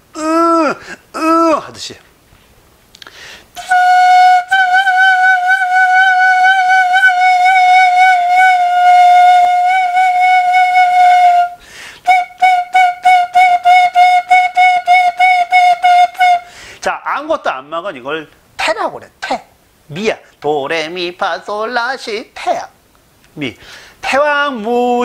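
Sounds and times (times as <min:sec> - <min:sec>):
flute notes: 0:03.6 - 0:16.5.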